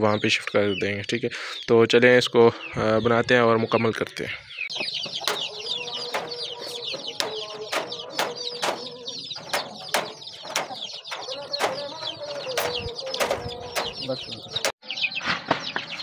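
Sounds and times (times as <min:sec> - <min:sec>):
chicks peeping: 0:00.0 - 0:16.0
wire mesh clicking on wood: 0:04.7 - 0:14.8.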